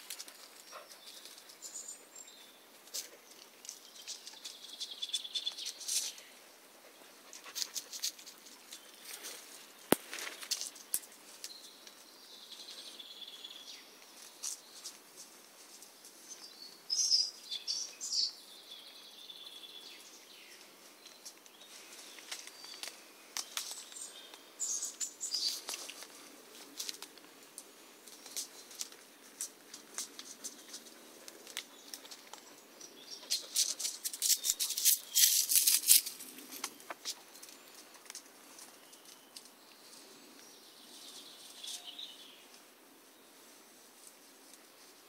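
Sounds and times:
twigs and dry leaves crackling: 0.0s - 6.3s, 7.3s - 13.0s, 14.0s - 17.0s, 20.5s - 42.6s
bird chirps: 0.4s - 6.4s, 16.3s - 25.7s, 38.8s - 42.5s.

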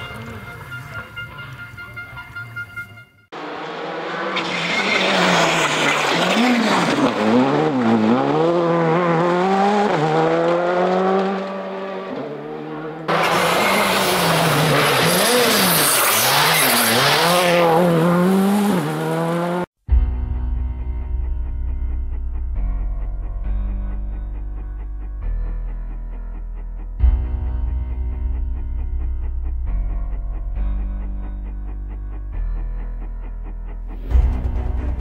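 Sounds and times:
rally car engine revving: 3.4s - 19.7s.

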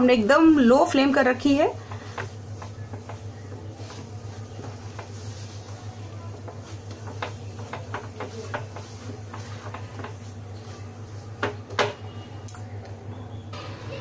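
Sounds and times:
spatula knocking on pan: 1.5s - 12.2s
spatula scraping steel pan: 1.8s - 10.9s.

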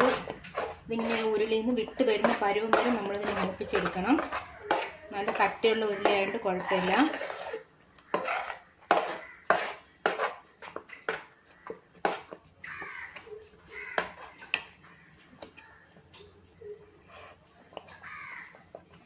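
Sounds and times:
spatula scraping a heavy pot: 0.0s - 13.0s, 13.7s - 14.6s, 17.0s - 17.4s.

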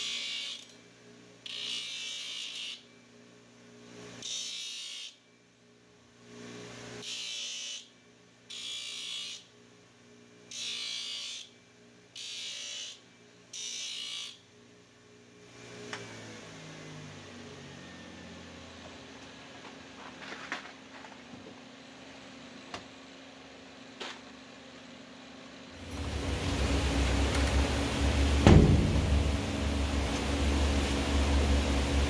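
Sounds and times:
belt grinder humming: 25.8s - 32.0s.

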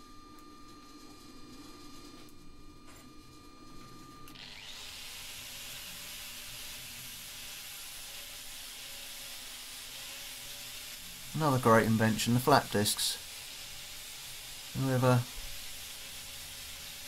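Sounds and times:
angle grinder grinding metal: 4.3s - 17.0s.

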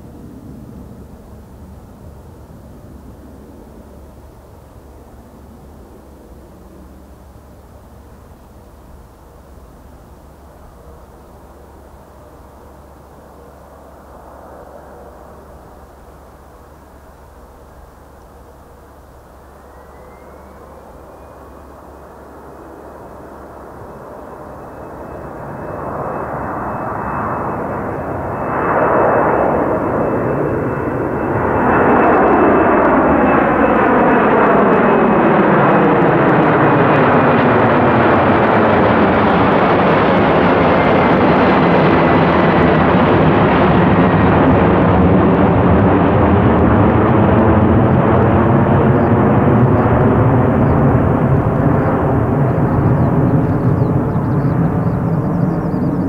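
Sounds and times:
high fan whine: 0.0s - 56.0s
jet roar overhead: 0.0s - 56.0s.

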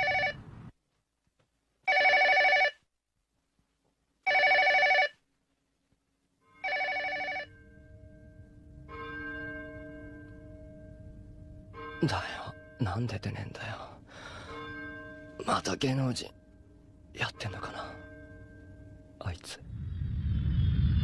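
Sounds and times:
electronic telephone ringing: 0.0s - 0.4s, 1.9s - 2.8s, 4.3s - 5.2s, 6.6s - 7.5s.

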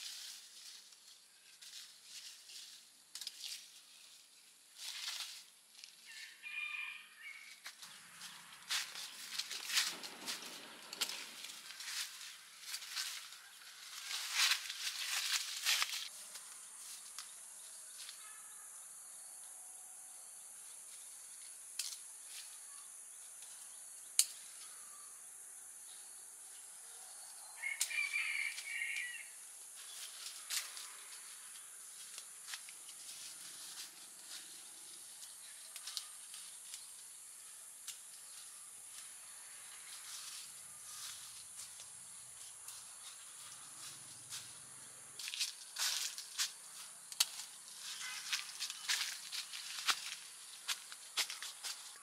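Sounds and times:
insects buzzing: 0.0s - 52.0s
clicks and rustles of fruit cutting: 45.2s - 47.5s.

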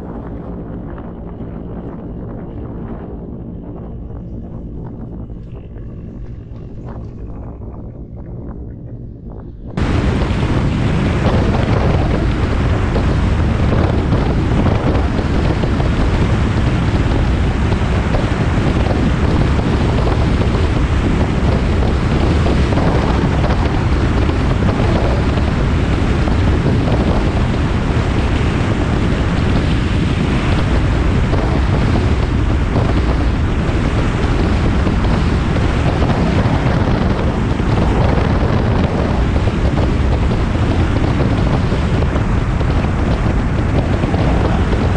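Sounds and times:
wind buffeting microphone: 0.0s - 44.9s.

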